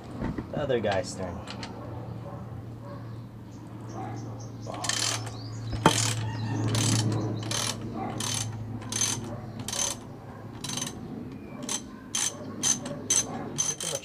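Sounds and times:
steady low hum: 1.1s - 14.0s
ratchet wrench clicking: 4.8s - 10.0s, 10.6s - 11.0s, 11.6s - 14.0s.

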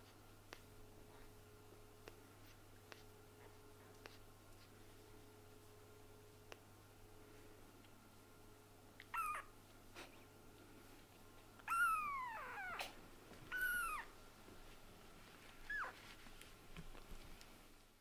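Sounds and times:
kitten mewing: 9.0s - 9.5s, 11.6s - 14.1s.

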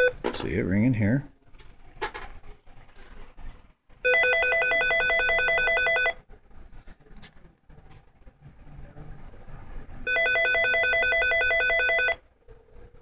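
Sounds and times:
desk phone electronic ringing: 4.0s - 6.2s, 10.1s - 12.3s.

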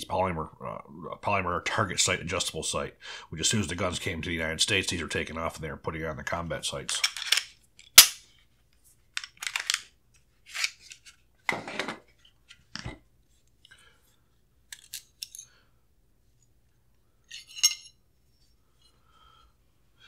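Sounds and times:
pistol parts clicking and rattling: 6.9s - 8.3s, 9.1s - 11.0s, 14.7s - 15.5s.

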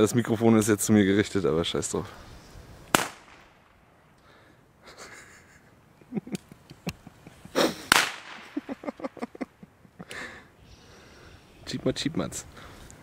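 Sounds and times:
firecracker bang: 2.9s - 3.7s, 7.8s - 8.7s.

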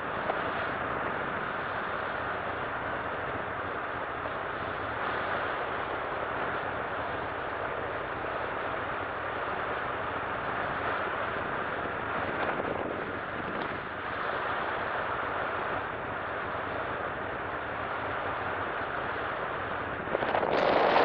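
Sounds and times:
aircraft engine noise: 0.0s - 21.0s
wind rushing: 19.8s - 21.0s.

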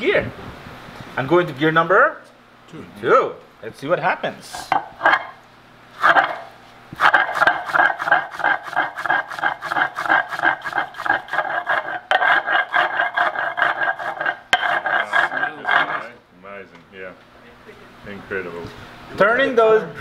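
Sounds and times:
stone scraping on stone: 4.6s - 5.4s, 6.0s - 16.1s.

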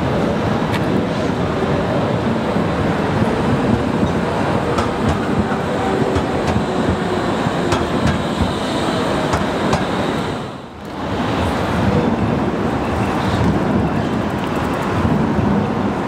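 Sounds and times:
tram running noise: 0.0s - 16.0s
wheels clicking over rail joints: 3.2s - 8.6s.

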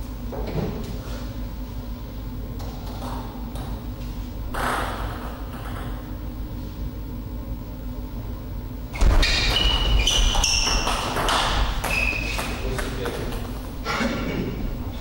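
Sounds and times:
thud: 9.0s - 10.0s
table tennis ball hits: 9.0s - 13.6s.

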